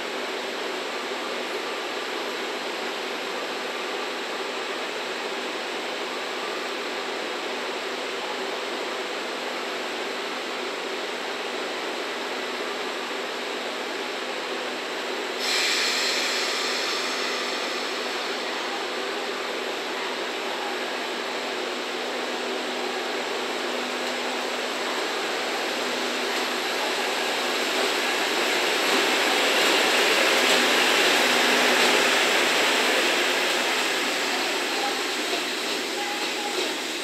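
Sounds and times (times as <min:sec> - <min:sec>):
station background noise: 0:00.0 - 0:37.0
loud hiss: 0:15.3 - 0:19.8, 0:23.4 - 0:37.0.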